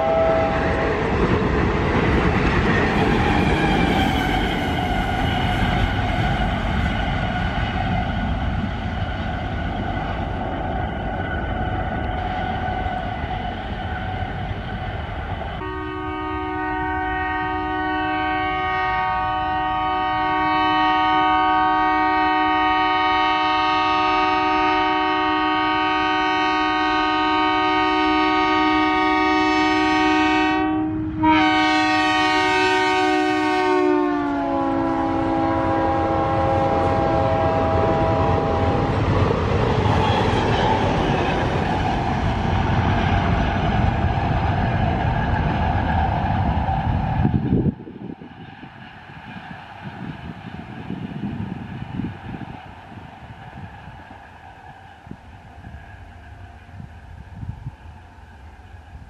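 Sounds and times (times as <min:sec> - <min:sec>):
train horn: 0:00.0 - 0:01.1, 0:15.6 - 0:39.0
train rumble and wheel clatter: 0:00.0 - 0:59.0.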